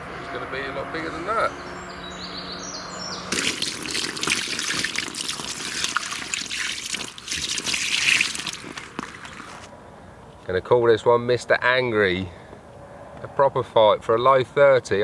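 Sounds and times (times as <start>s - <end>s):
water splashing and trickling: 3.3s - 9.7s.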